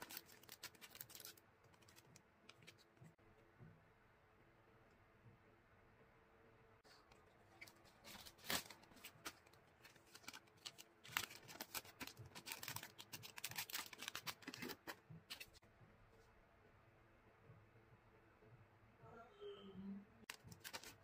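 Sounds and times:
plastic packaging crinkling: 0:00.0 - 0:02.9, 0:07.5 - 0:15.6, 0:20.3 - 0:21.0.

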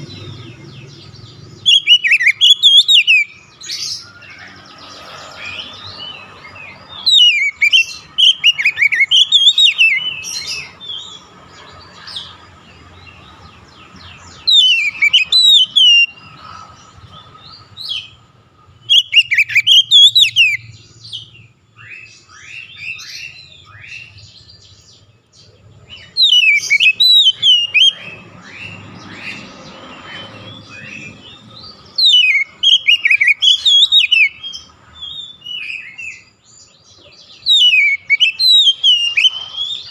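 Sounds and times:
soft bird chirps: 0:00.0 - 0:39.9
bird whistled warbling: 0:01.6 - 0:04.2, 0:07.0 - 0:10.7, 0:14.5 - 0:16.2, 0:18.9 - 0:20.7, 0:26.0 - 0:28.8, 0:32.0 - 0:36.2, 0:37.4 - 0:39.9.

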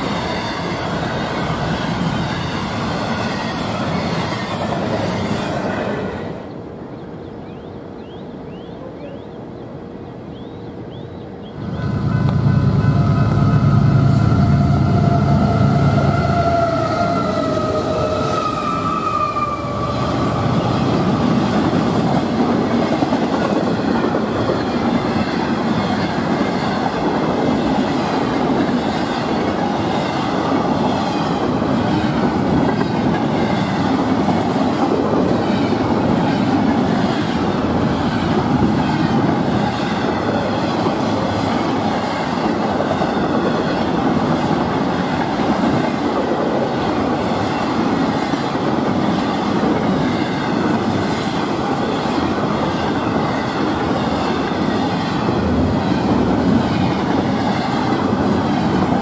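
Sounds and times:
train wheels rumbling on rails: 0:00.0 - 0:09.2, 0:10.9 - 0:59.0
locomotive horn: 0:11.8 - 0:20.2.

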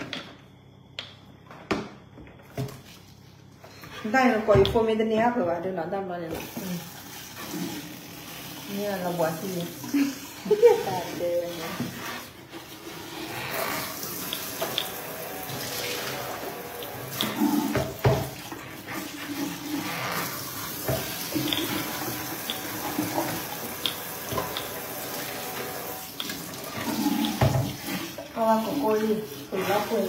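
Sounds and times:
water running at a sink: 0:06.2 - 0:30.0.

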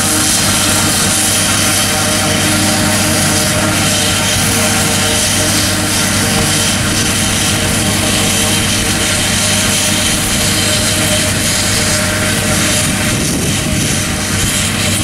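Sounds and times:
constant rushing noise: 0:00.0 - 0:15.0
forage harvester engine drone: 0:00.0 - 0:15.0.

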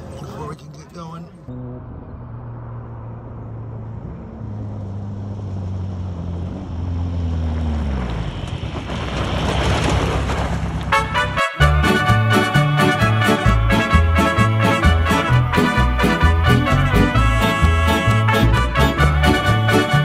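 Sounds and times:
vehicle engine running: 0:00.0 - 0:11.4.

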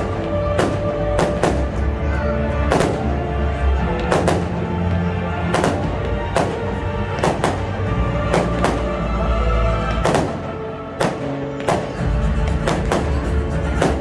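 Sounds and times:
fireworks bursting: 0:00.0 - 0:01.9, 0:04.0 - 0:04.7, 0:05.4 - 0:09.1, 0:09.9 - 0:14.0.

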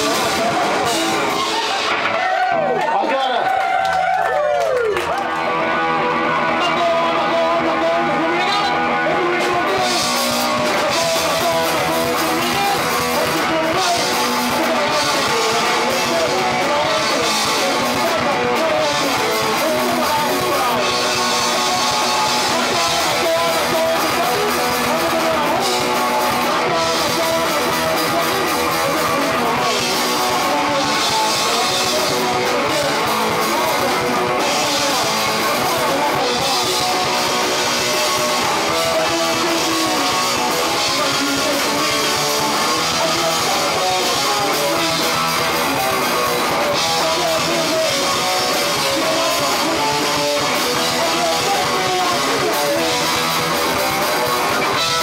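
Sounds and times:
drum kit with cymbals: 0:00.0 - 0:02.1, 0:06.6 - 0:55.0
electric guitars: 0:00.0 - 0:55.0
singer shouting: 0:00.0 - 0:55.0.

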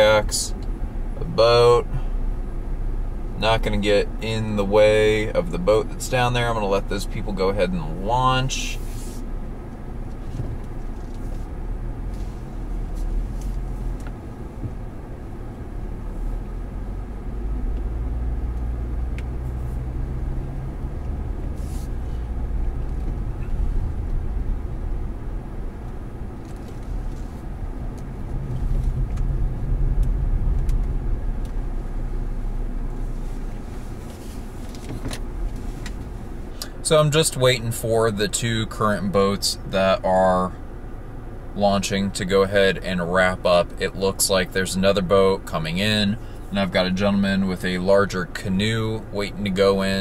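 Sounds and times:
car engine and tyre rumble: 0:00.0 - 0:50.0.

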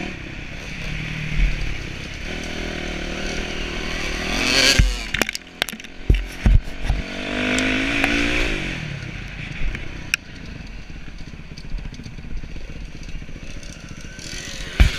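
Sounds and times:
dirt bike engine revving: 0:00.0 - 0:09.2, 0:12.6 - 0:14.9.

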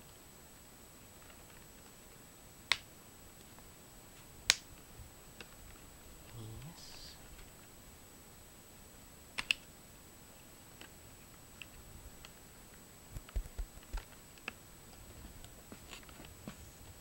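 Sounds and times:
plastic clips snapping into place: 0:09.4 - 0:09.6.

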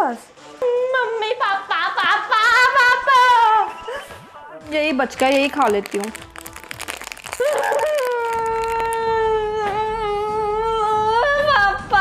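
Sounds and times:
young woman wailing: 0:07.4 - 0:09.7.

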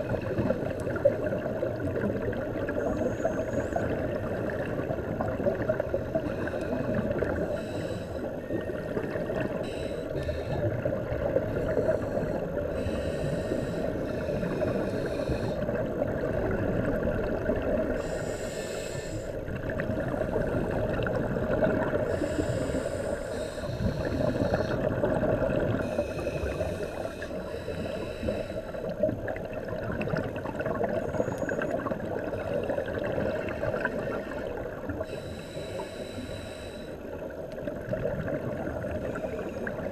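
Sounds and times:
muffled underwater rush: 0:00.0 - 0:39.9
scuba regulator hissing and bubbling: 0:05.9 - 0:08.3, 0:09.0 - 0:15.8, 0:17.8 - 0:29.1, 0:33.3 - 0:37.1.

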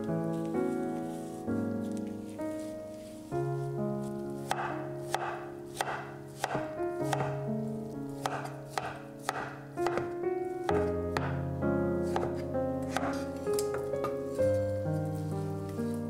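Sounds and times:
background music: 0:00.0 - 0:16.0
knife knocking on cutting board: 0:08.3 - 0:10.1.

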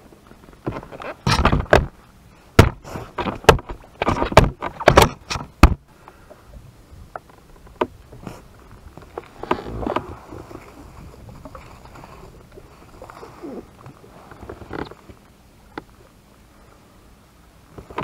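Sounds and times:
sharp knocks and bumps: 0:02.6 - 0:05.8.

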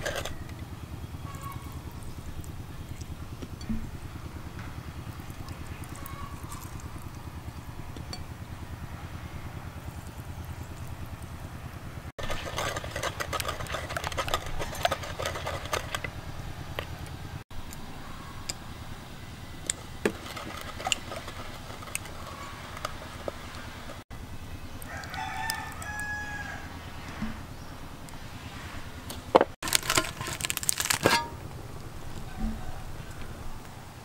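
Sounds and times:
low engine-like drone: 0:00.0 - 0:34.0
pestle grinding sauce in mortar: 0:12.2 - 0:17.0, 0:19.6 - 0:24.0.

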